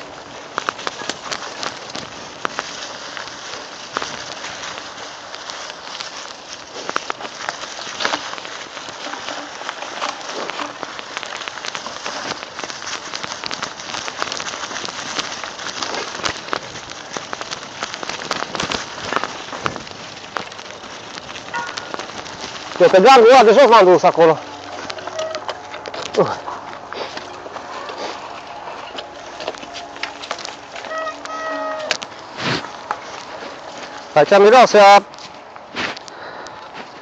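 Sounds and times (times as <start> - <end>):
bike clicking and knocking: 0.0 - 23.1
bike tyres rolling over leaves: 0.0 - 37.0.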